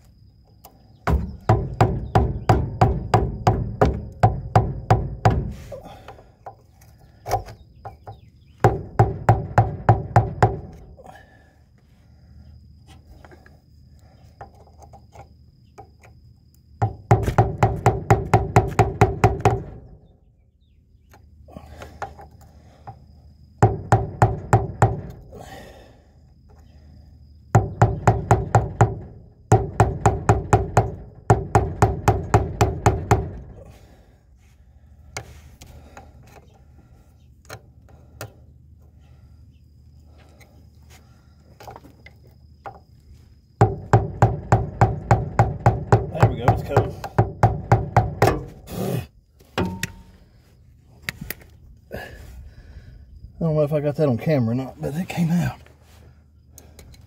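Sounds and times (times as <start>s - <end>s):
hammer striking metal: 49.6s - 50.2s.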